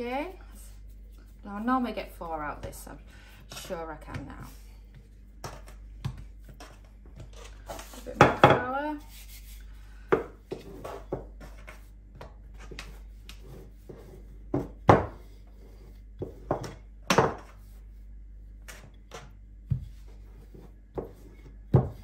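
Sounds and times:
rolling pin rubbing dough: 0.1 - 22.0.

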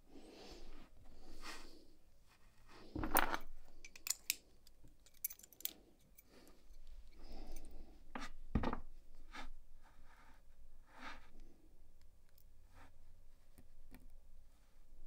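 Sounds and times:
metallic clicks of lock pins: 3.8 - 6.3.

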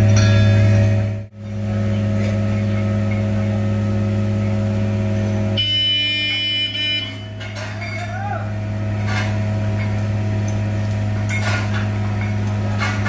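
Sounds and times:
diesel engine humming: 0.0 - 13.0
high steady tone: 5.6 - 7.5.

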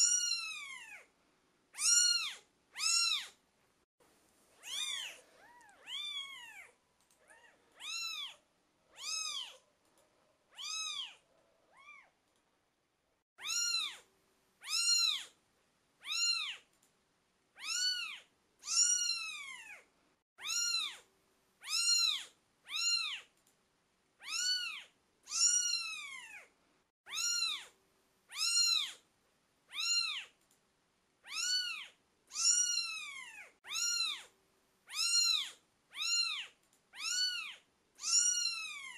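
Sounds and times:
kittens meowing: 0.0 - 1.1, 1.8 - 3.4, 4.6 - 9.6, 10.5 - 12.2, 13.4 - 14.0, 14.6 - 15.3, 16.0 - 16.6, 17.6 - 19.8, 20.4 - 21.0, 21.6 - 23.3, 24.2 - 26.5, 27.1 - 27.7, 28.3 - 29.0, 29.7 - 30.3, 31.2 - 34.3, 34.9 - 38.9.

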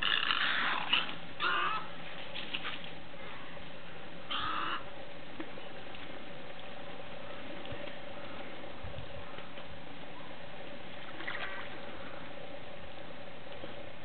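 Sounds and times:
faint steady hum: 0.0 - 14.0
egrets squawking: 4.3 - 4.9.

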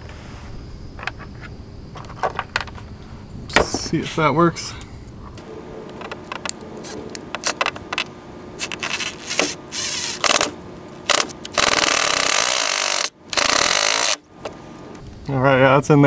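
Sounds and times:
cordless drill driving screw: 8.7 - 10.5, 11.1 - 14.2.

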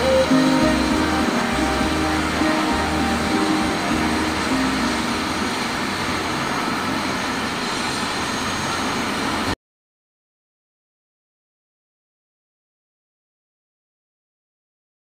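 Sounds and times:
helicopter turbine and rotor: 0.0 - 9.6.

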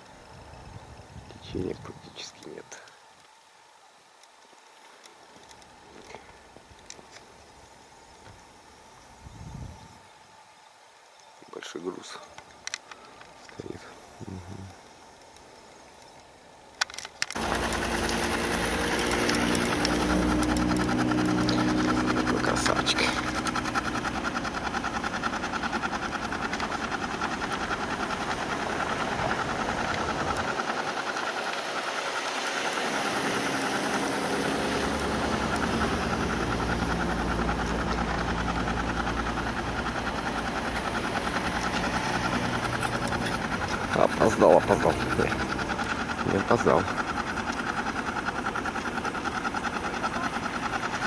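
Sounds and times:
engine humming: 11.6 - 51.0.

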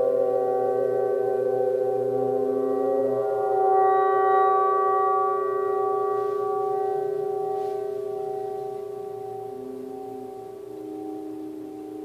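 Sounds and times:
singing bowls ringing: 0.0 - 12.0.

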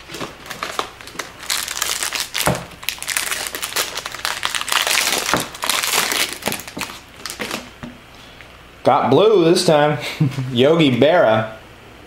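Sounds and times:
wrapper tearing and crinkling: 0.0 - 7.8.

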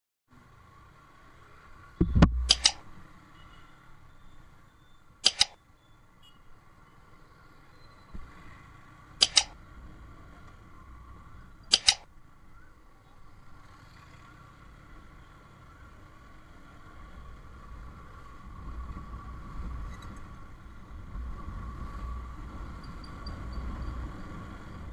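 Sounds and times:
short low thud: 2.0 - 2.6
mouse double clicks: 2.0 - 2.8, 5.2 - 5.6, 9.2 - 9.6, 11.7 - 12.1.

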